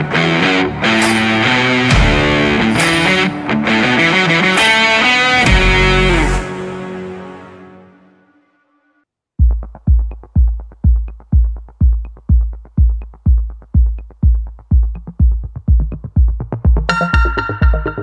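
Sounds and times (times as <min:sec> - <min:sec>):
electronic dance music beat: 0:09.4 - 0:18.0.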